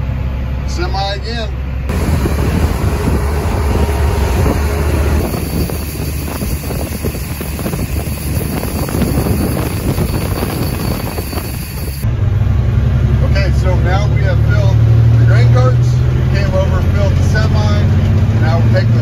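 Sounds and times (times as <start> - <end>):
tractor engine rumble: 0.0 - 19.0
wind on microphone: 1.9 - 12.1.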